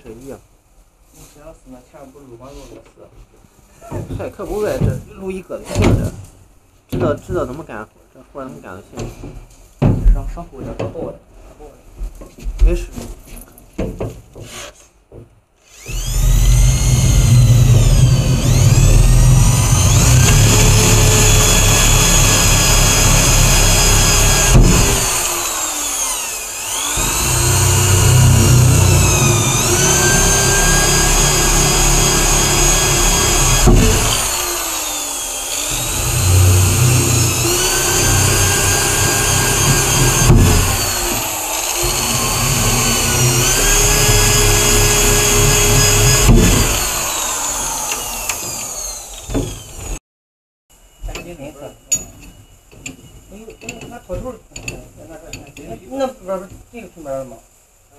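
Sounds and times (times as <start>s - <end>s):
electric drill boring holes: 15.6s - 50.0s.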